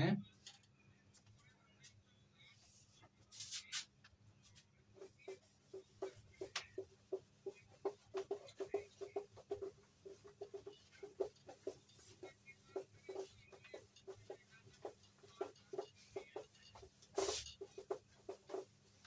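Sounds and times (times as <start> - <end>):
duster scraping whiteboard: 5.0 - 19.0
duster squeaking on whiteboard: 5.0 - 19.0.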